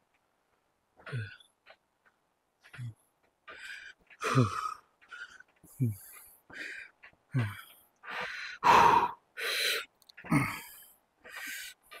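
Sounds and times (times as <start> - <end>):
man breathing hard: 3.5 - 12.0.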